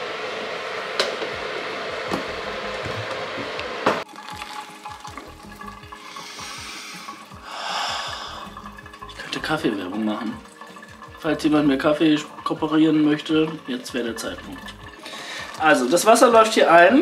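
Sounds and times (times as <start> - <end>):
loud steady hiss: 0.0 - 4.0, 6.0 - 8.5
water poured onto coffee grounds: 4.0 - 17.0.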